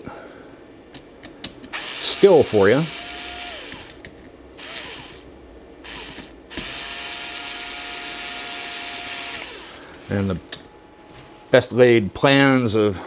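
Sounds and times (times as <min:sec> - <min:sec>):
cordless driver motor whine: 0:01.8 - 0:04.0, 0:04.6 - 0:09.8.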